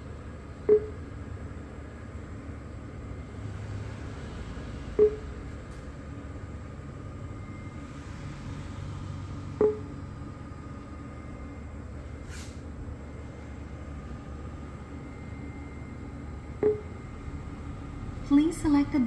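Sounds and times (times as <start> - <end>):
steady low hum: 0.0 - 19.0
short key-press beeps: 0.7 - 1.0, 5.0 - 5.3, 9.6 - 9.9, 16.6 - 16.9.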